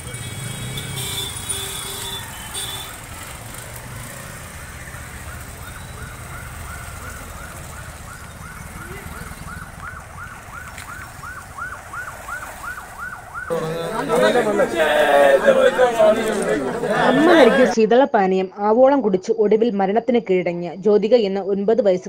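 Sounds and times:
ambulance siren wailing: 0.0s - 3.4s, 4.4s - 17.8s
motorcycle engines rumbling: 0.0s - 17.8s.

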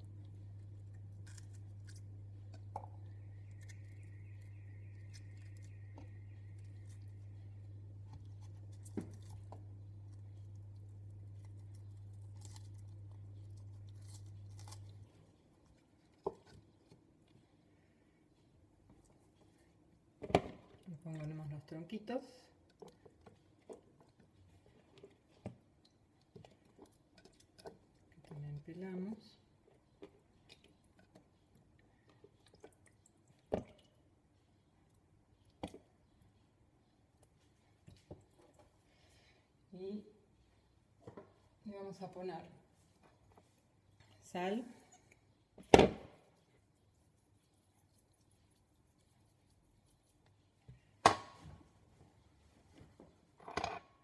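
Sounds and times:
stems being peeled by hand: 0.0s - 17.4s
steady low hum: 0.0s - 20.2s.

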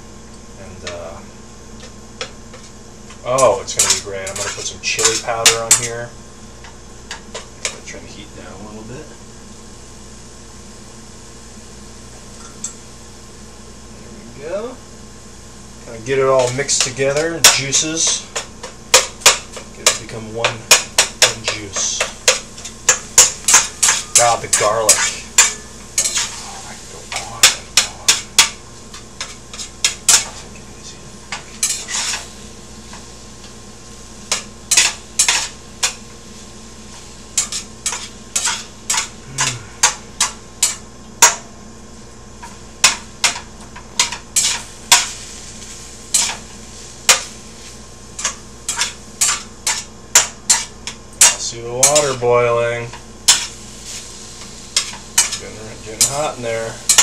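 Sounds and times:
utensil scraping a pan: 3.4s - 6.0s, 15.9s - 30.6s, 31.3s - 33.1s, 34.3s - 36.0s, 36.9s - 41.4s, 42.4s - 57.0s.

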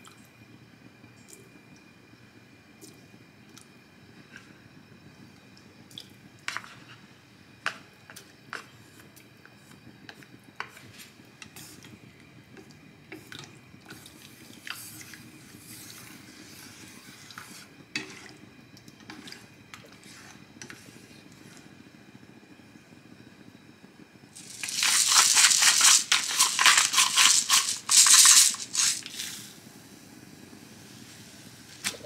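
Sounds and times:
porridge simmering: 0.0s - 32.0s
chopsticks stirring tofu: 24.4s - 29.3s.

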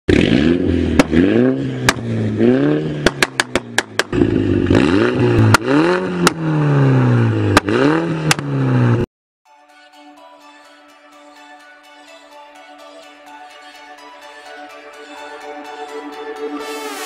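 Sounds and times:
car engine revving: 0.1s - 9.1s
exhaust pops and cracks: 1.8s - 2.1s, 3.0s - 4.2s.

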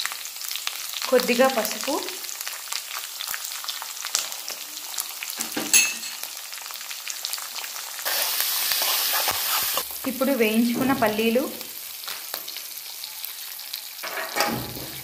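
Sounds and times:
spices sizzling in hot oil: 0.0s - 15.0s
metal clink: 5.7s - 6.2s.

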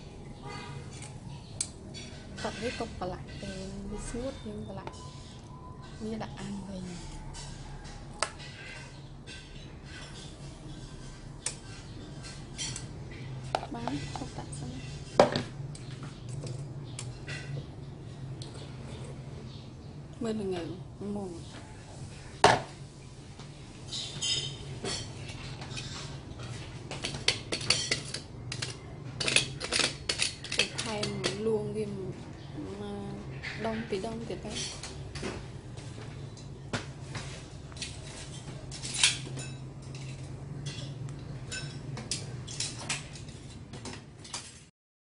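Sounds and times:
kitchenware clinking: 0.4s - 6.0s, 6.9s - 17.7s, 23.9s - 31.8s, 33.4s - 35.5s, 36.2s - 44.7s.

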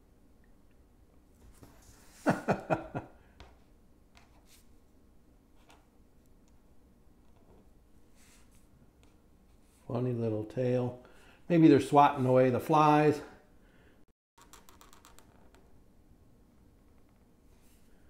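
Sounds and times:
person chuckling: 2.2s - 3.2s.

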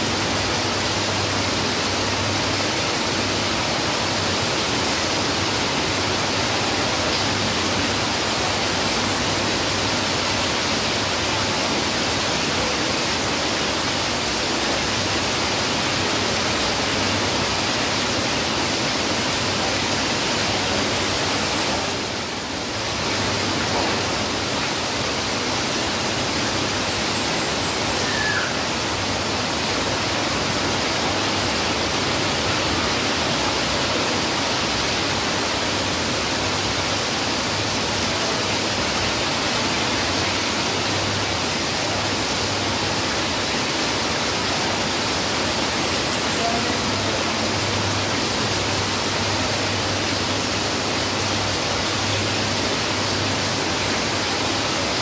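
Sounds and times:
heavy rain on foliage and roofs: 0.0s - 55.0s
water pouring off roof edge: 0.1s - 26.9s.

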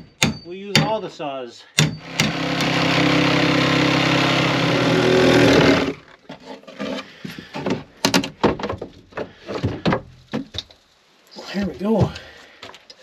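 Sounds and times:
power saw cutting plywood: 2.0s - 6.1s
wooden knocks and clatter: 6.0s - 10.8s.

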